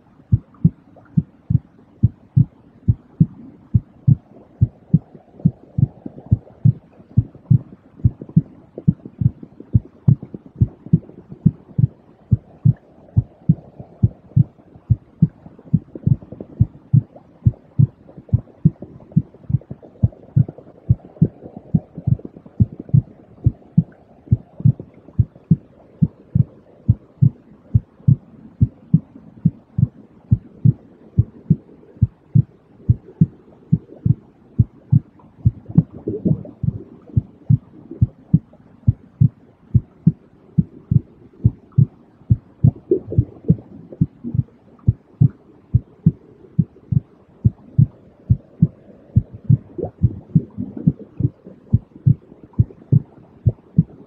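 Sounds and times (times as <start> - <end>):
heartbeat thumps: 0.3 - 54.0.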